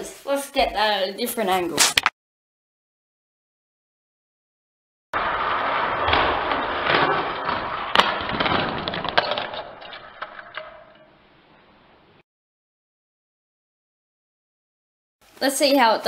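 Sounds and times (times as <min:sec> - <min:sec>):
toy car rolling on plastic track: 0:05.2 - 0:11.1.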